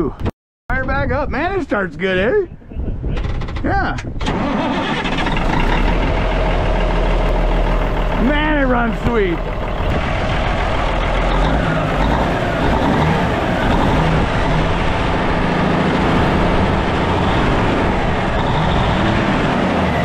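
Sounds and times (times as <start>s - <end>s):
diesel truck engine idling: 4.6s - 20.0s.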